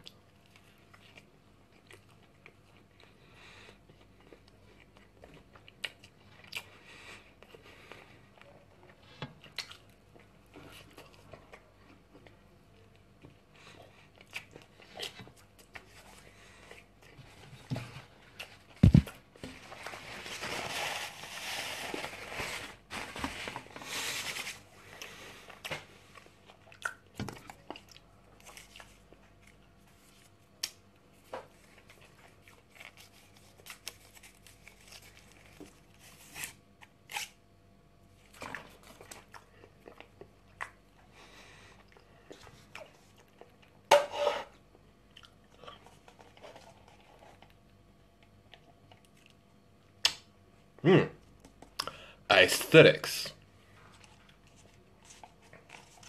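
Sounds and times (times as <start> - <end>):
person chewing: 0.0 - 17.2, 24.9 - 30.8, 38.8 - 43.9, 45.0 - 47.6
paper packaging rustling: 18.7 - 24.7.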